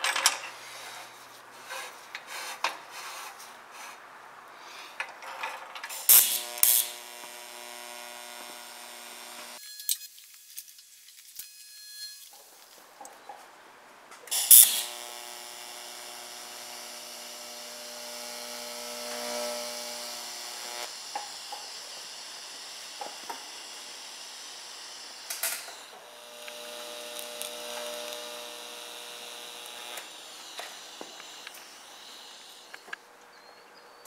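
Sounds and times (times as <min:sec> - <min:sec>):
welding arc buzzing hum: 0:05.9 - 0:09.6, 0:14.3 - 0:32.9
welding arc crackle: 0:05.9 - 0:09.6, 0:14.3 - 0:33.0.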